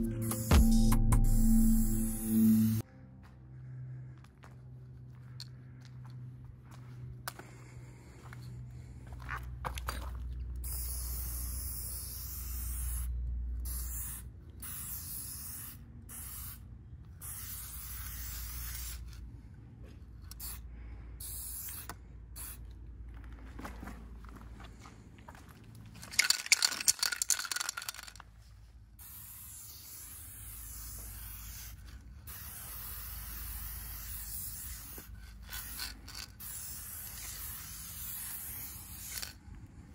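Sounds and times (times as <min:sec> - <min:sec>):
spray paint can hissing: 0:00.0 - 0:02.8, 0:10.6 - 0:19.2, 0:20.3 - 0:20.6, 0:21.2 - 0:22.6, 0:26.2 - 0:28.2, 0:29.0 - 0:39.4.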